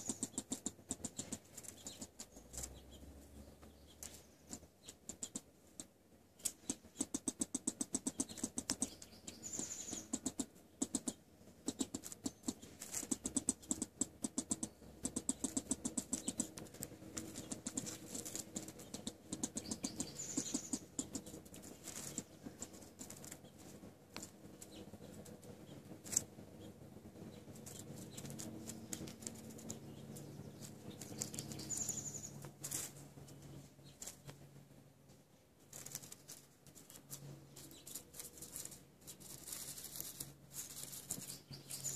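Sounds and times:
soft clicks and scratches in dirt: 0:11.7 - 0:25.4, 0:35.7 - 0:41.9
high chirps: 0:17.3 - 0:21.4.

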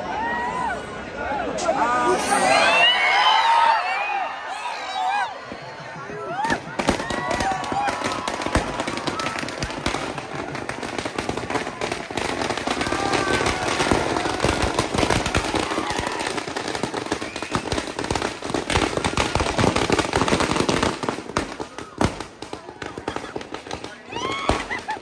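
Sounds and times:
faint crowd voices: 0:00.0 - 0:19.8, 0:20.5 - 0:25.0
firecrackers crackling: 0:05.8 - 0:25.0.

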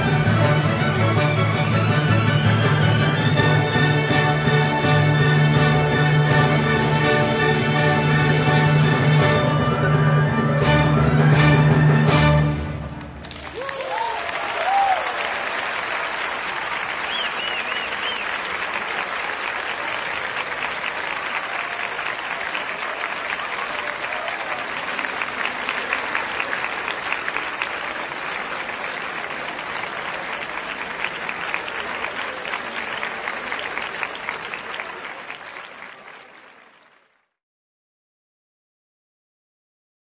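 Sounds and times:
crowd applauding: 0:12.9 - 0:37.4
crowd cheering: 0:13.0 - 0:37.4.

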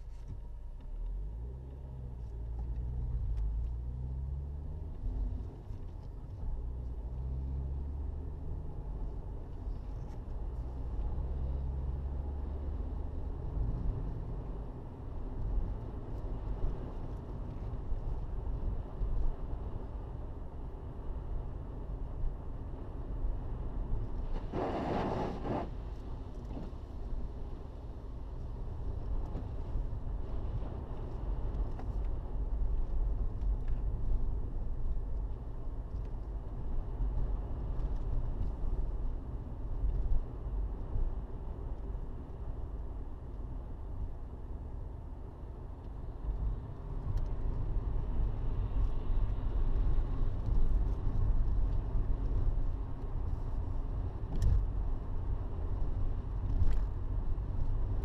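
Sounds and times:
car engine and tyres rumbling: 0:00.0 - 0:58.0
brief rush of hiss: 0:24.4 - 0:25.7.

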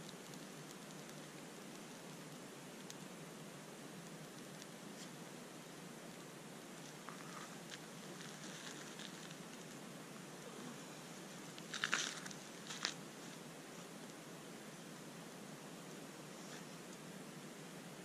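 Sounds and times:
faint steady hiss: 0:00.0 - 0:18.0
twigs crunching and snapping: 0:06.8 - 0:09.8, 0:11.5 - 0:13.4.

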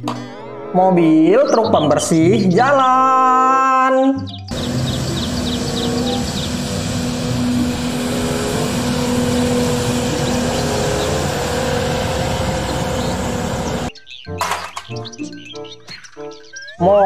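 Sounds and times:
children's music: 0:00.0 - 0:11.9, 0:13.0 - 0:17.0
broom and road noise: 0:04.5 - 0:13.9
street sweeper engine and fan hum: 0:04.5 - 0:13.9.

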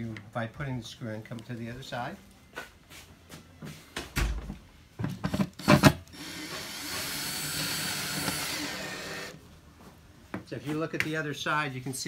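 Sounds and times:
cordless drill running: 0:05.6 - 0:09.4.

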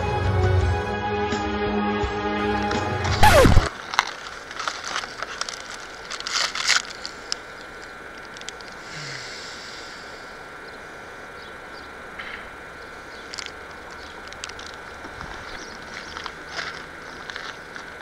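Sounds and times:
plastic wrapper crinkling and tearing: 0:03.6 - 0:07.2.

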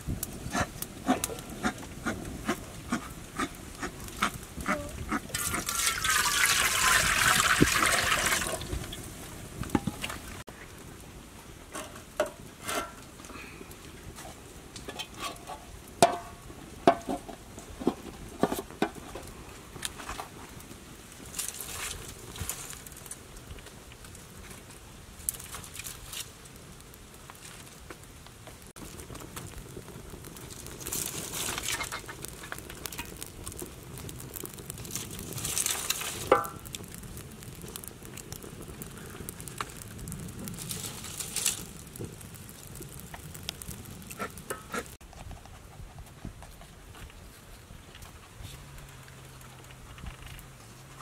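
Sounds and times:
water poured into a wok: 0:05.3 - 0:09.0.

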